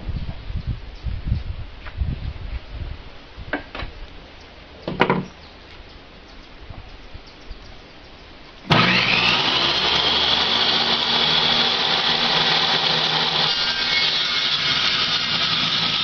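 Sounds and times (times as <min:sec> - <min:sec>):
circular saw motor whine: 0:08.7 - 0:16.0.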